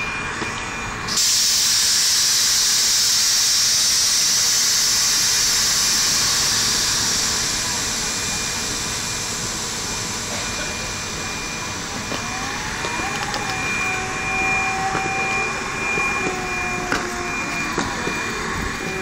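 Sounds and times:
train whining tone: 0.0 - 19.0
train hiss: 1.1 - 11.2.

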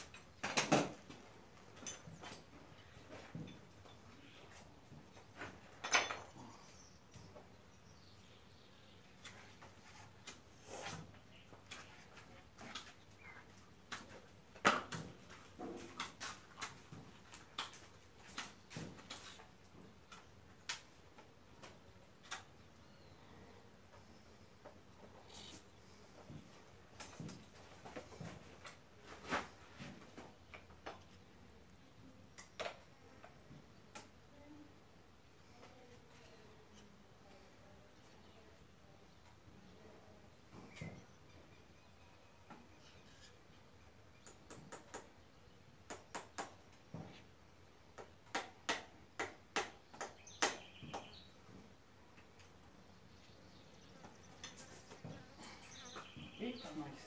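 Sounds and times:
metal tools tapping horseshoe: 5.8 - 6.5.

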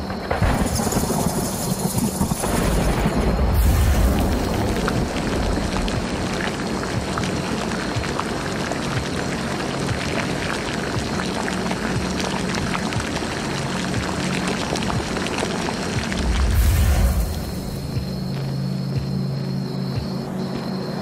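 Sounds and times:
low rumble: 2.4 - 7.2, 14.8 - 18.6.

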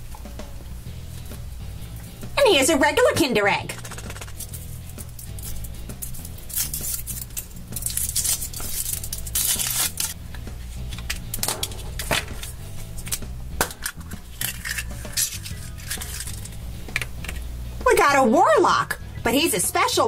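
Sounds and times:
quiet background music: 0.0 - 20.0
chocolate shell cracking: 3.8 - 10.2, 10.9 - 17.4
foil wrapper crinkling: 3.8 - 16.6.

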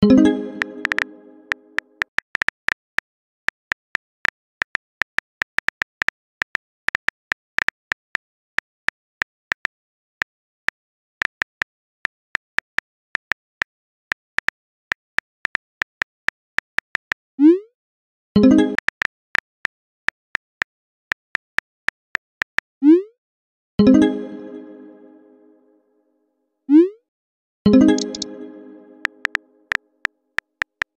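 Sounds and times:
phone keyboard taps: 0.8 - 1.1, 28.0 - 28.3.

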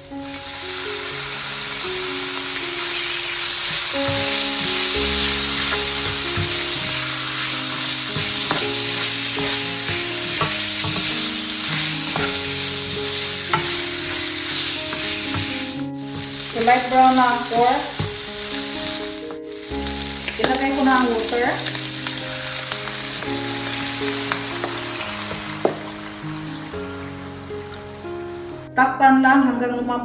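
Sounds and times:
pork sizzling in hot oil: 0.0 - 28.7
spatula scraping a pan: 2.8 - 25.6.

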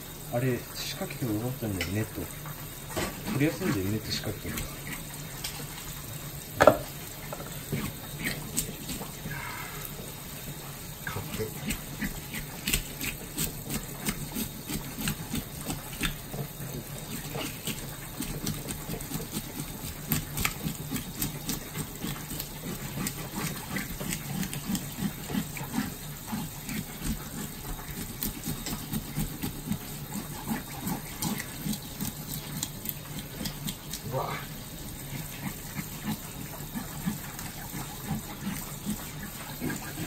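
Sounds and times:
hands scrubbing fish: 0.9 - 6.2, 7.4 - 40.0
tap water splashing in sink: 1.6 - 8.0.

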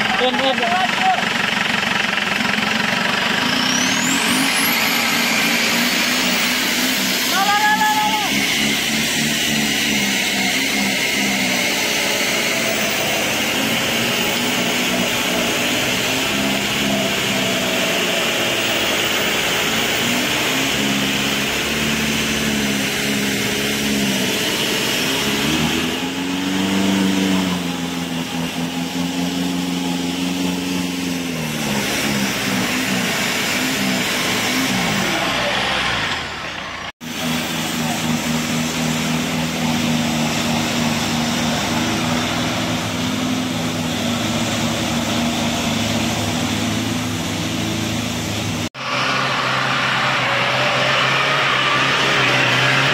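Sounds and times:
off-road engines revving: 0.0 - 52.9.

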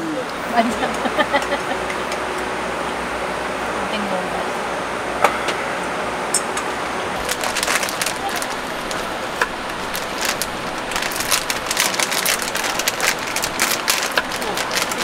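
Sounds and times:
heavy rain on a tarp: 7.2 - 15.0.

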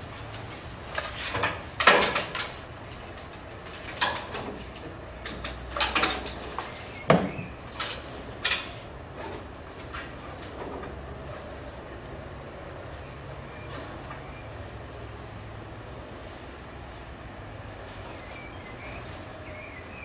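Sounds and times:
hard objects knocking and clattering: 3.9 - 8.0.

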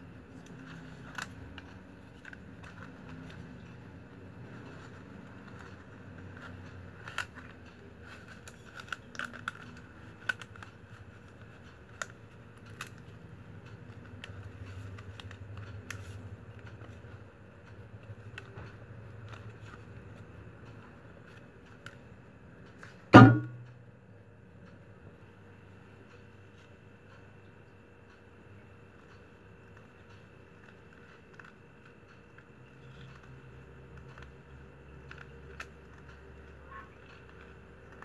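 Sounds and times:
plastic strap clicks and crackles: 6.4 - 13.1
loud knock: 23.2 - 23.7.

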